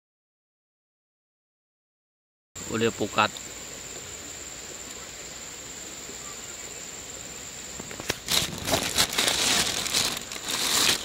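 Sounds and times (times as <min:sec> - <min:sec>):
high insect drone: 0:02.6 - 0:11.0
crinkling and rustling: 0:07.8 - 0:11.0.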